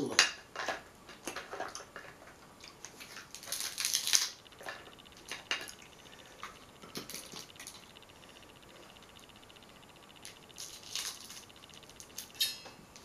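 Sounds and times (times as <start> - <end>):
crab shell cracking: 2.6 - 4.4, 10.2 - 12.5.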